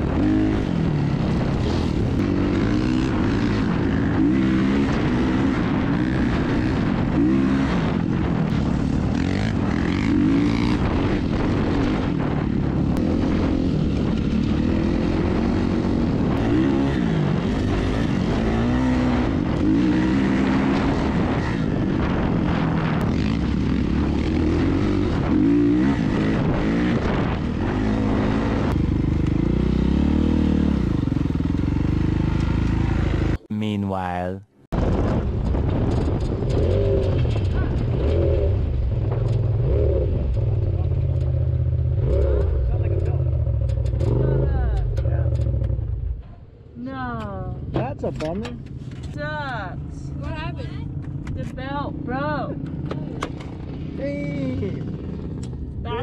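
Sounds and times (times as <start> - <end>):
off-road vehicle engine revving: 0.0 - 33.4, 36.4 - 46.0.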